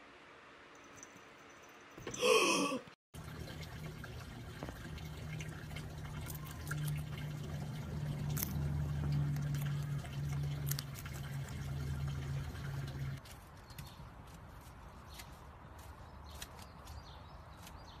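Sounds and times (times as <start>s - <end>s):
guinea pig chewing crunchily: 5.8s - 12.2s.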